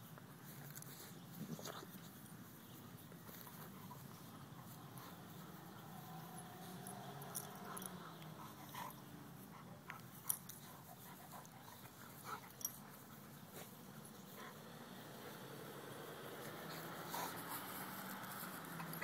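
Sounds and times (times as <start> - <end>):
sharp clicks of dogs tussling: 3.0 - 9.0, 16.3 - 19.0.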